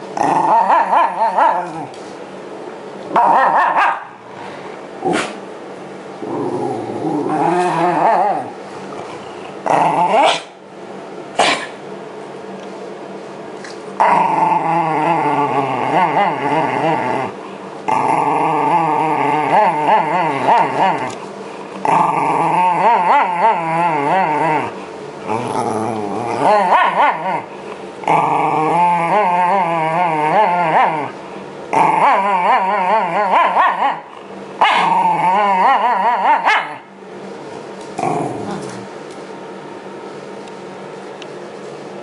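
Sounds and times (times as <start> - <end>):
dog growling: 0.1 - 2.0, 6.2 - 10.6, 14.0 - 36.9, 38.0 - 39.0.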